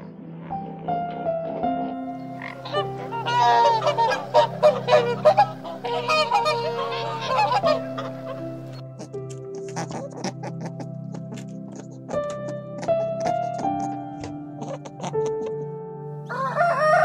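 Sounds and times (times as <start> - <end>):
soft background music: 0.0 - 17.0
goose honking: 2.3 - 15.6.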